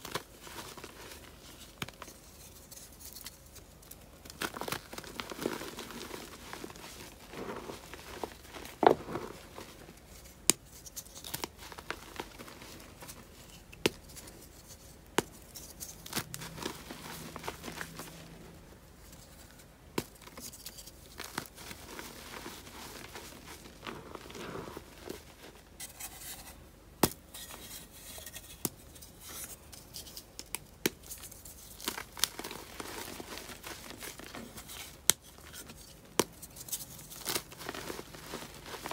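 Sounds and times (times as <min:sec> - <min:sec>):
chalk crumbling in hands: 0:00.0 - 0:18.3.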